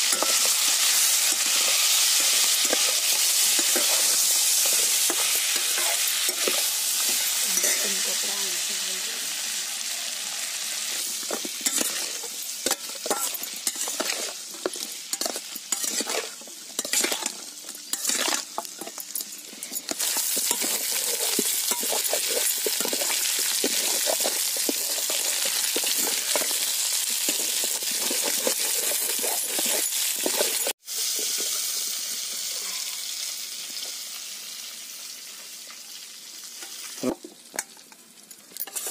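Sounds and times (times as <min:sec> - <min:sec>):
metal spatula scraping a pan: 0:00.0 - 0:08.4, 0:10.9 - 0:31.9, 0:38.6 - 0:38.9
meat sizzling in a wok: 0:00.0 - 0:38.9.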